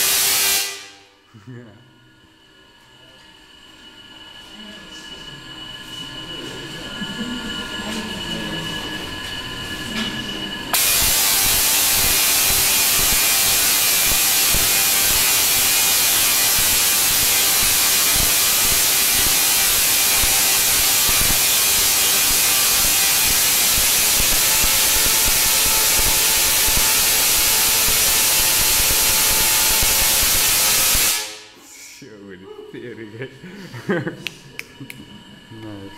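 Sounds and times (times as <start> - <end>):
tesla coil spark noise: 0.0 - 1.1, 10.7 - 31.6.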